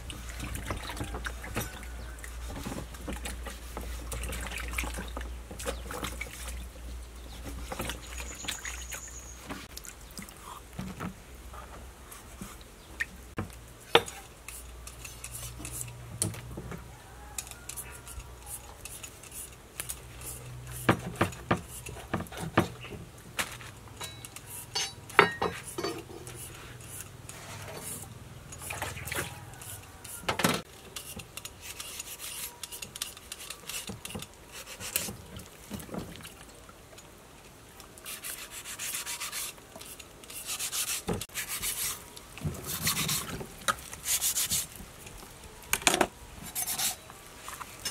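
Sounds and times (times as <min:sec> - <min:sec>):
water splashing in a bowl: 0:00.0 - 0:06.8, 0:28.5 - 0:29.7.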